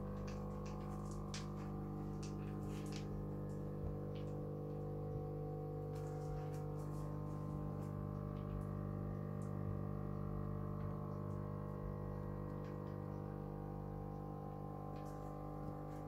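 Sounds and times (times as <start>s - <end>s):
air pump humming: 0.0s - 16.0s.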